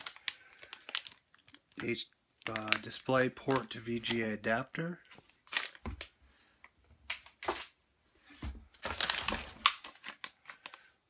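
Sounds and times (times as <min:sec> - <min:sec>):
plastic bags crinkling: 0:00.0 - 0:06.2, 0:08.4 - 0:10.9.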